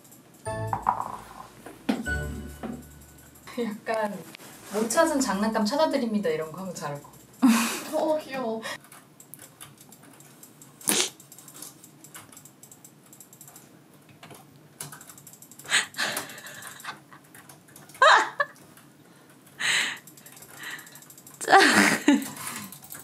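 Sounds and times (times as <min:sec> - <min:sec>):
mouse and keyboard clicking: 0:08.8 - 0:16.3.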